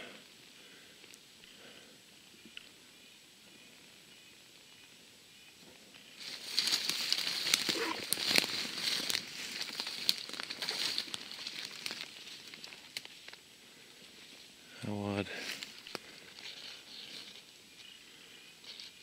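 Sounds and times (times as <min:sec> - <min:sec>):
twigs crackling and snapping underfoot: 0:06.2 - 0:14.5, 0:15.3 - 0:19.0.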